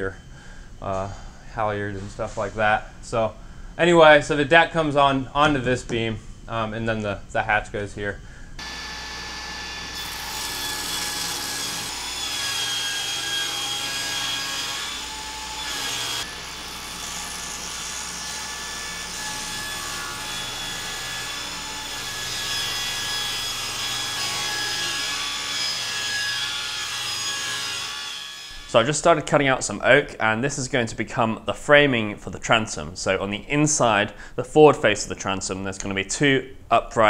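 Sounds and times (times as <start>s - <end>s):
table saw cutting wood: 8.6s - 28.8s.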